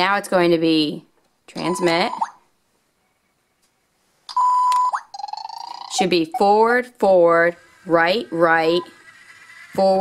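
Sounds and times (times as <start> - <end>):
electronic beep with rising chirp: 1.6 - 2.4, 4.3 - 6.4.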